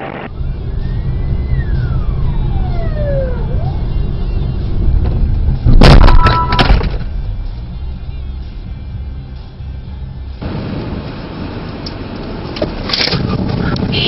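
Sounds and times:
car engine and road rumble: 0:00.0 - 0:14.0
tone gliding down in pitch: 0:00.8 - 0:03.9
vehicle collision crash: 0:05.7 - 0:07.1.

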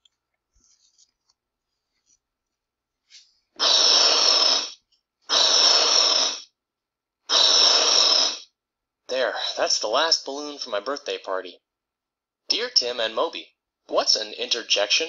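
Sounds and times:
person blowing up a balloon: 0:03.6 - 0:06.6, 0:07.3 - 0:08.6.

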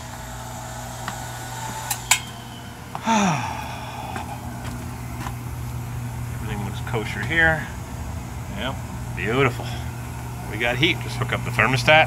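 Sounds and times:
furnace humming: 0:00.0 - 0:12.0
sigh-like voice: 0:03.0 - 0:04.6.

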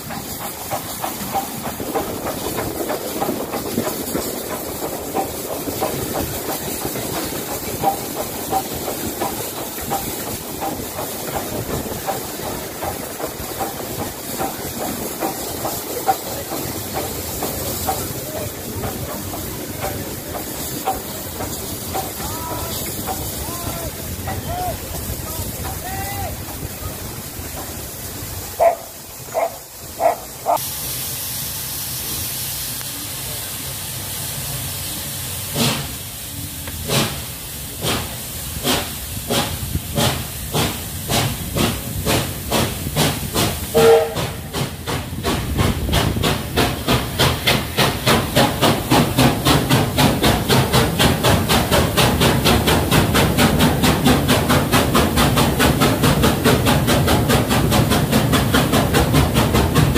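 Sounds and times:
steam hissing: 0:00.0 - 0:59.9
steam locomotive exhaust beats: 0:00.0 - 0:59.9
train running noise: 0:00.0 - 0:59.9
steam whistle toots: 0:43.7 - 0:44.4.

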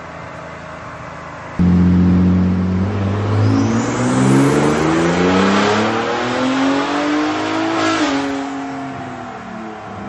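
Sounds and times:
high turbo whistle: 0:01.6 - 0:06.8
engine revving under full load: 0:01.6 - 0:09.0.

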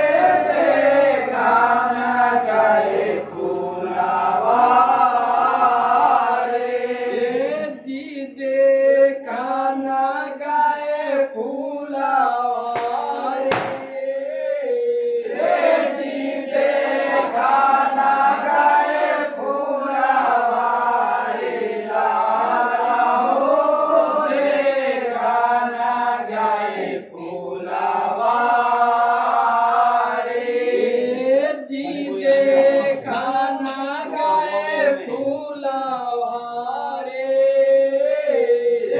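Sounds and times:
men singing folk song: 0:00.0 - 0:38.9
sharp knock: 0:12.8 - 0:13.9.

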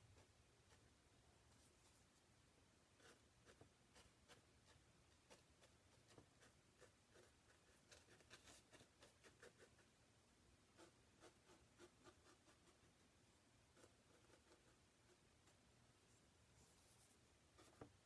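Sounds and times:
brush scratching on panel: 0:03.0 - 0:09.9, 0:10.7 - 0:13.0, 0:13.7 - 0:15.2.

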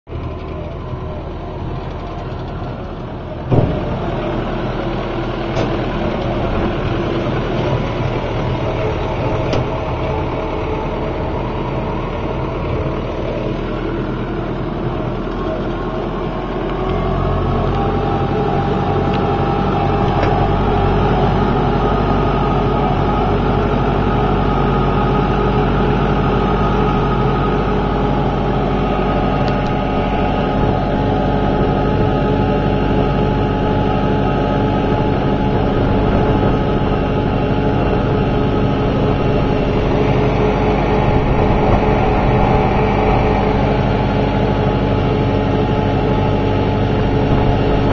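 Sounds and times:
tractor engine running: 0:00.1 - 0:47.9
sharp knock: 0:03.5 - 0:03.9.

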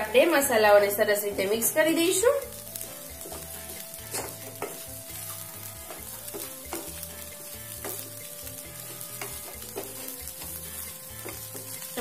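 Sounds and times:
food sizzling in pan: 0:00.0 - 0:12.0
spatula scraping pan: 0:03.0 - 0:12.0.

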